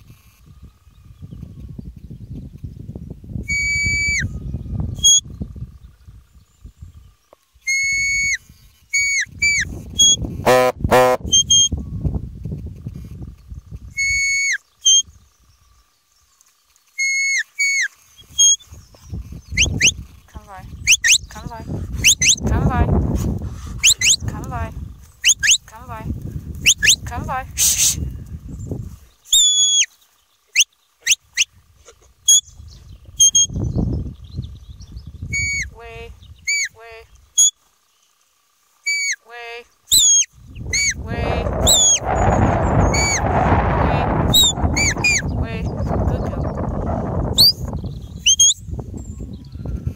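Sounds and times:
sheepdog whistle commands: 3.5 - 4.2, 7.7 - 8.4, 11.3 - 11.7, 14.0 - 15.0, 17.0 - 18.6, 22.0 - 22.4, 23.8 - 24.2, 25.2 - 25.7, 26.6 - 28.0, 29.3 - 29.9, 35.3 - 35.7, 36.5 - 36.8, 38.9 - 39.2, 39.9 - 41.0, 41.6 - 42.2, 44.3 - 45.2
short harsh calls: 7.6 - 11.7, 13.9 - 15.0, 16.9 - 22.6, 23.6 - 28.1, 29.3 - 32.5, 33.2 - 33.5, 35.3 - 37.8, 38.7 - 45.6, 47.4 - 47.7, 48.3 - 48.6
short buzzy low call: 7.7 - 11.7.

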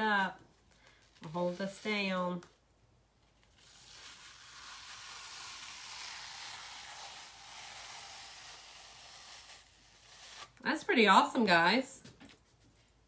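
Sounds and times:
sticky transfer peeling off fabric: 3.3 - 10.6.

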